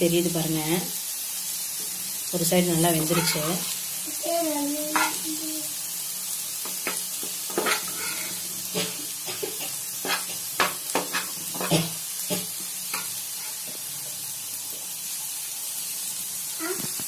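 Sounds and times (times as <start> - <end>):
potatoes sizzling in oil: 0.0 - 17.0
steel spatula scraping griddle: 3.0 - 3.7, 4.9 - 5.3, 6.7 - 13.8.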